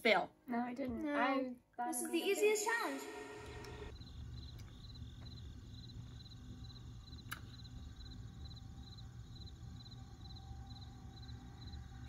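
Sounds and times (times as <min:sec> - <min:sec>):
cricket chirping: 0:03.9 - 0:12.0.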